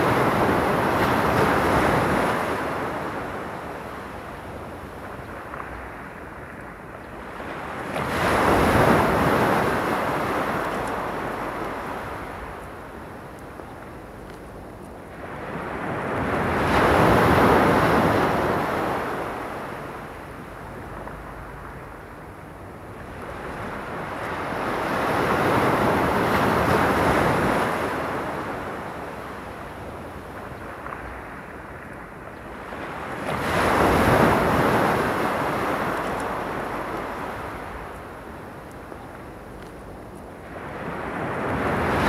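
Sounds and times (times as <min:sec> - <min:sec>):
waves washing up a pebbly shore: 0:07.3 - 0:12.4, 0:32.6 - 0:38.1.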